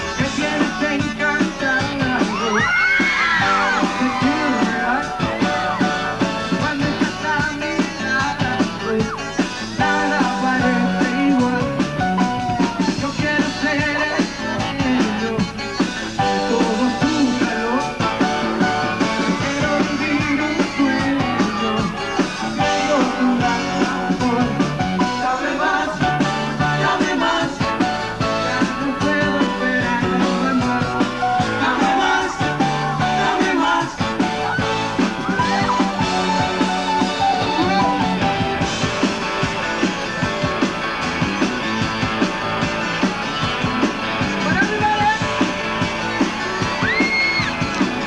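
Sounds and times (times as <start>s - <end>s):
man singing: 0.0s - 36.6s
live pop-rock band: 0.0s - 48.0s.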